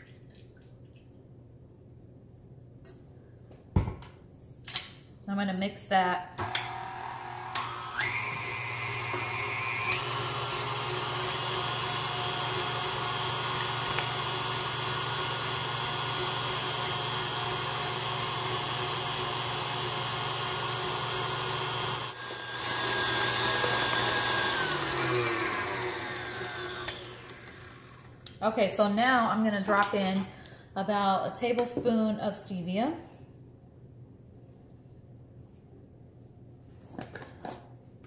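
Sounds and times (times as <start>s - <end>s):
stand mixer whipping cream: 6.7s - 28.2s.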